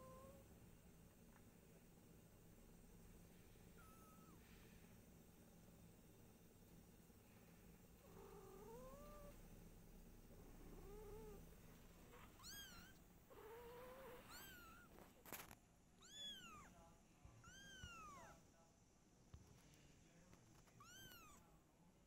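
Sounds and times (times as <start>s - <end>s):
kitten mewing: 12.1s - 15.0s, 16.0s - 16.7s, 17.4s - 18.4s, 20.7s - 21.4s.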